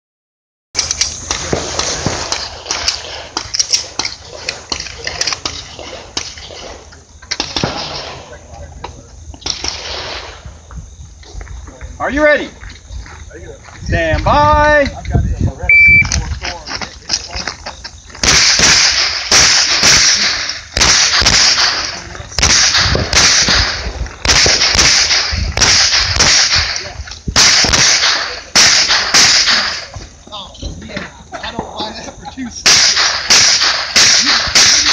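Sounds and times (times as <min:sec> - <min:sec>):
pistol shots: 0:18.2 - 0:29.9, 0:32.6 - 0:34.9.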